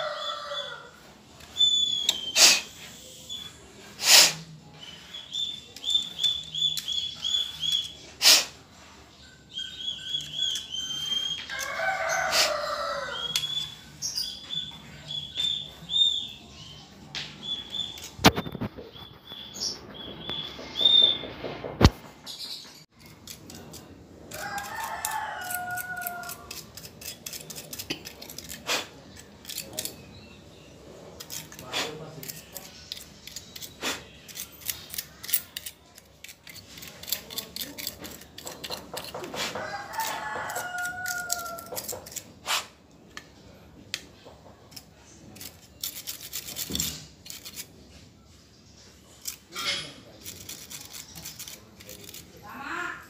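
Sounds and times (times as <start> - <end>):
rooster crowing: 0.0 - 1.0, 11.5 - 13.4, 24.3 - 26.6, 39.4 - 41.9.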